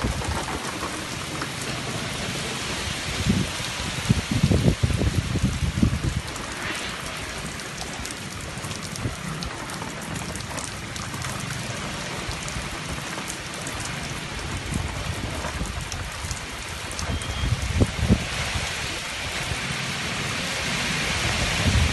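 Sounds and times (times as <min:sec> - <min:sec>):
heavy rain pouring: 0:00.0 - 0:21.9
wind tossing trees: 0:00.0 - 0:21.9
low rumble: 0:05.0 - 0:09.7.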